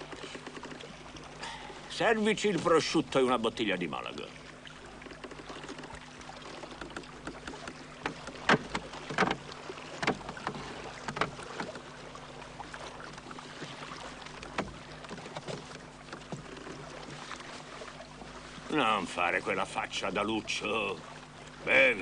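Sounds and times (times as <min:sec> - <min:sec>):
small boat at sea: 0:00.0 - 0:22.0
sharp knocks: 0:06.8 - 0:09.4.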